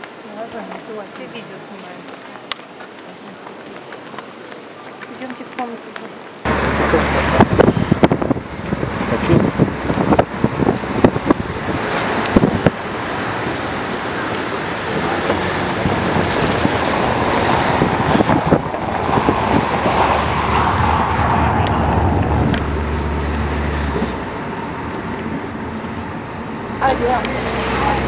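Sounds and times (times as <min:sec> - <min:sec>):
road and traffic noise: 0:00.0 - 0:28.0
low engine hum: 0:06.4 - 0:28.0.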